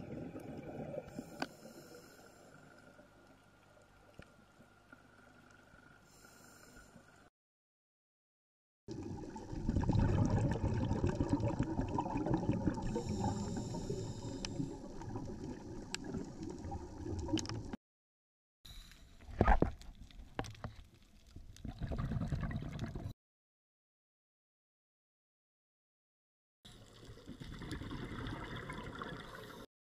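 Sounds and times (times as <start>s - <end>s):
underwater regulator bubbles gurgling: 8.9s - 17.8s, 21.6s - 23.1s, 27.0s - 29.6s.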